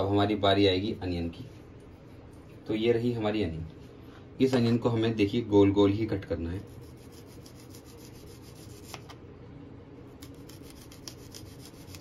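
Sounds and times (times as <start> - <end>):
knife slicing onion on board: 6.7 - 9.2, 10.2 - 12.0.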